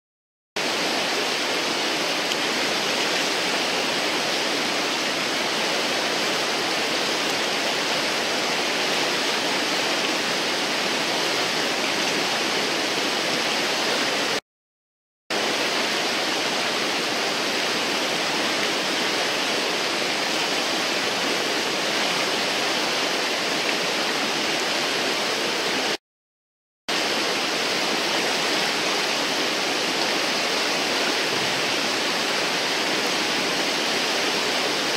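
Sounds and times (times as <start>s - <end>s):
whitewater rushing: 0.6s - 14.4s, 15.3s - 26.0s, 26.9s - 34.9s.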